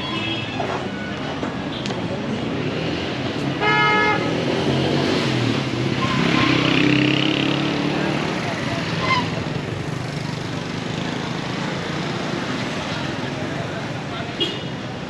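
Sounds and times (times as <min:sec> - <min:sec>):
street traffic: 0:00.0 - 0:15.0
vehicle horn: 0:03.6 - 0:04.4.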